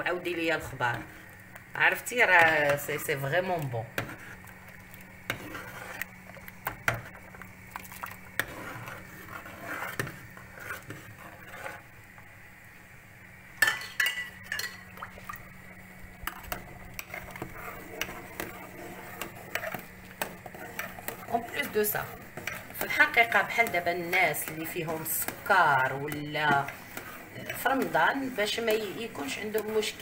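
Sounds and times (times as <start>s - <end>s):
steady low hum: 0.0s - 30.0s
spoon stirring soup in pot: 0.2s - 12.3s, 13.6s - 30.0s.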